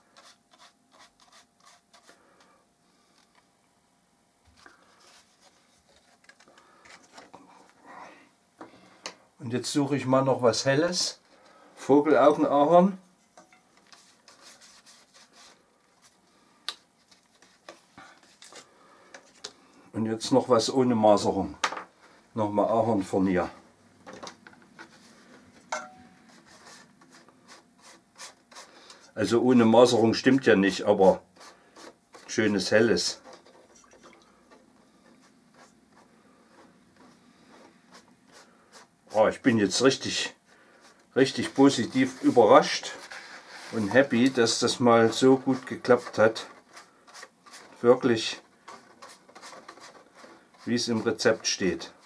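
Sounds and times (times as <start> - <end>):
paintbrush rubbing on wood: 13.9 - 15.7, 34.9 - 52.0.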